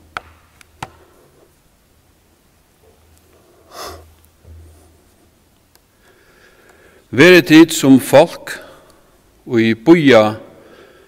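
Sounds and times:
man breathing through nose: 3.4s - 5.2s, 5.9s - 7.1s, 10.6s - 11.0s.

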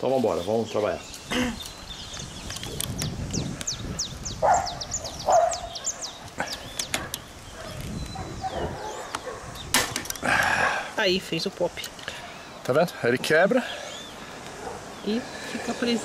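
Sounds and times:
small birds chirping: 0.0s - 16.0s
dog barking: 4.4s - 6.2s, 7.6s - 9.5s, 14.6s - 14.9s.

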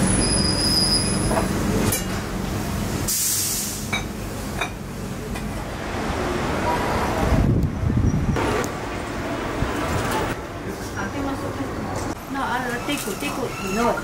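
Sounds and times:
cups and glassware clinking: 3.9s - 4.8s.

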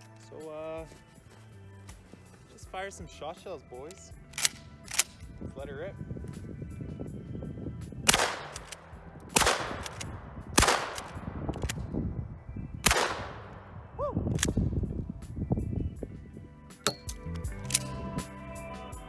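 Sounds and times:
shotgun shots: 8.0s - 11.8s, 12.8s - 13.6s
man whooping: 13.9s - 14.3s.

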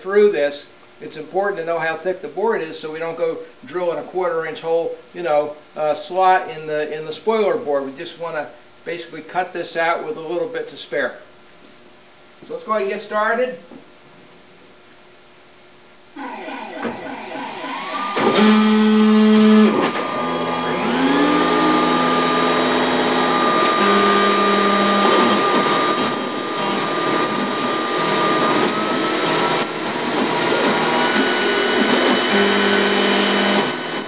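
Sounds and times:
gantry drive motors humming: 16.0s - 33.6s
router spindle motor whine: 16.0s - 34.0s
vacuum dust-collection hose running: 16.0s - 34.0s.

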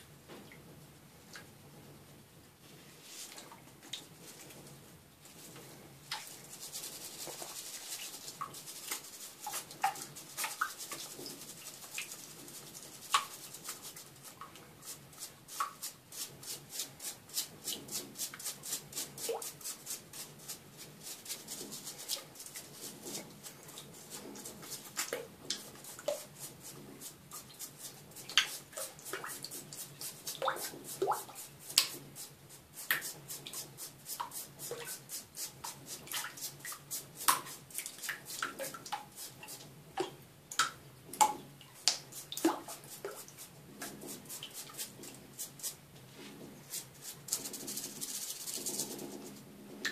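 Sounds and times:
toothbrush scrubbing spines: 46.7s - 49.4s.

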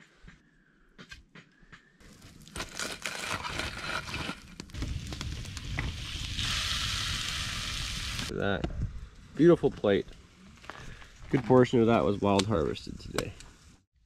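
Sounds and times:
fish sizzling on griddle: 4.8s - 8.3s.

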